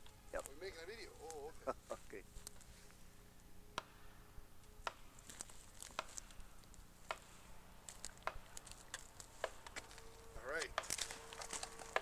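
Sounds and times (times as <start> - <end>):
boots stepping through dry branches: 5.1 - 12.0.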